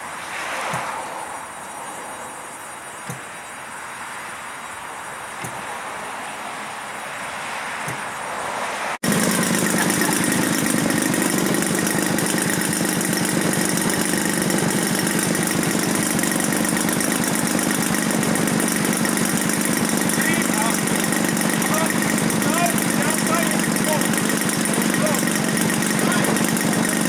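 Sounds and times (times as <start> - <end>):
model aeroplane engine idling: 9.0 - 27.0.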